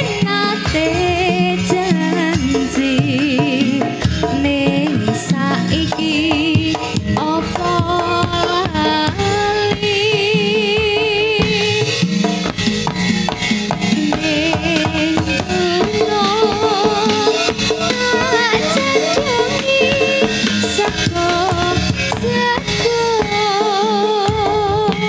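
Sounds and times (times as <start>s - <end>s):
drum strokes: 0.0s - 25.0s
gamelan music: 12.0s - 22.9s
person singing: 14.0s - 25.0s.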